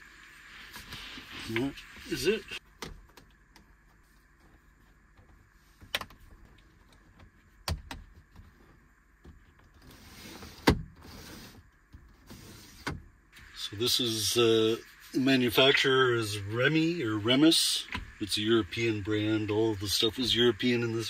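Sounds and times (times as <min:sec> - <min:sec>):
window blind sliding rasp: 0:09.8 - 0:12.9.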